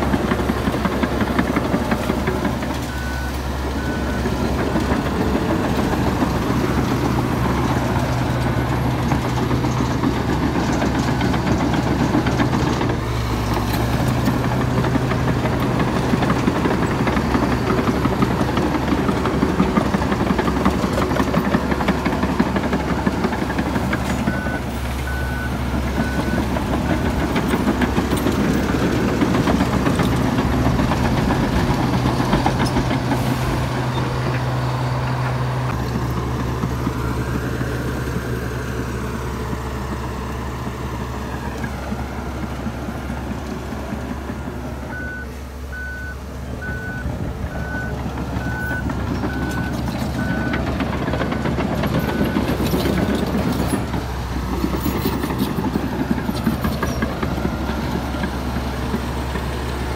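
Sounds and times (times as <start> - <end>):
bulldozer diesel engine running: 0.0 - 59.9
reversing alarm beeping: 2.8 - 5.0, 24.2 - 27.0, 44.9 - 50.7.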